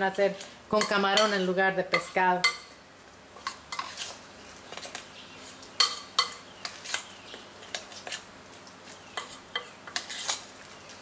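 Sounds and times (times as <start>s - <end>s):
spoon scraping glass bowl: 9.2s - 10.5s.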